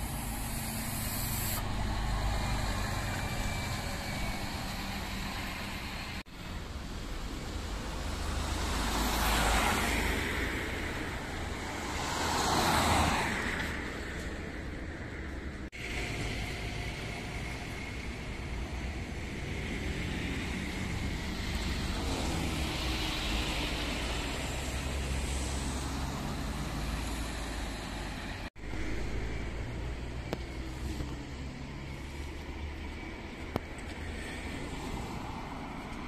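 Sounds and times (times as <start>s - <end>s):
bus engine driving past: 0.0s - 36.0s.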